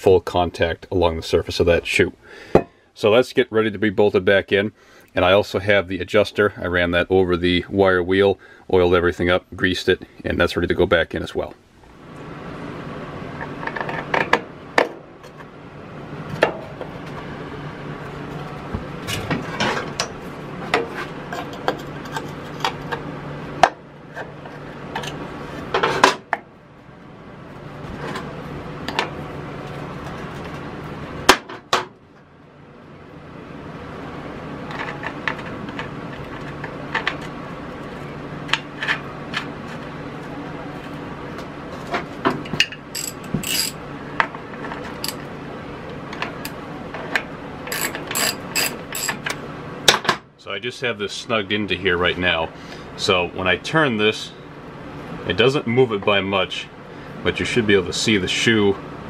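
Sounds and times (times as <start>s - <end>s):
steady low hum: 0.0s - 59.0s
metal tools clinking: 43.0s - 43.8s, 47.7s - 49.3s.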